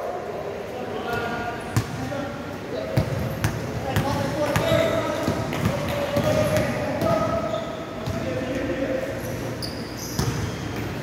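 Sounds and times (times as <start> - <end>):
basketballs bouncing on floor: 3.0 - 7.2
short high squeaks: 9.6 - 10.6.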